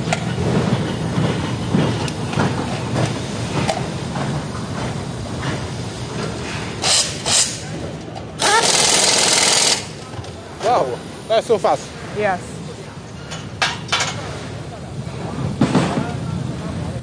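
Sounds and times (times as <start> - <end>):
assembly line noise: 6.8 - 7.6, 8.4 - 10.0
pneumatic tool bursts: 6.8 - 7.7, 8.4 - 10.0.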